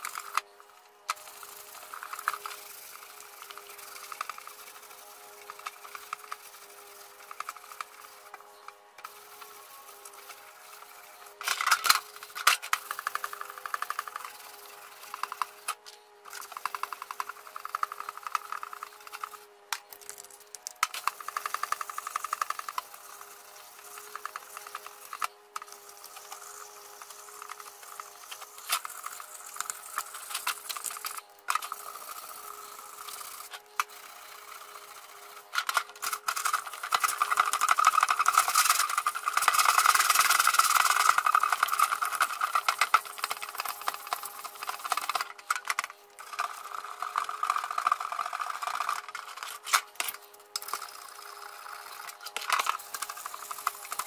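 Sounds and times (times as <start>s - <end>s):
sandpaper rubbing on metal: 26.1s - 45.3s.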